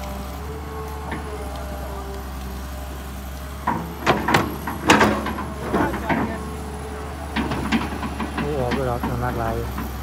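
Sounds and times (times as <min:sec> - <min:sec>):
excavator diesel engine running: 0:00.0 - 0:10.0.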